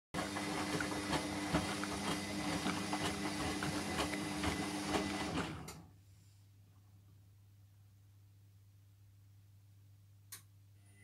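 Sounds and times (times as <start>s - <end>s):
washing machine motor hum: 0.2s - 5.9s.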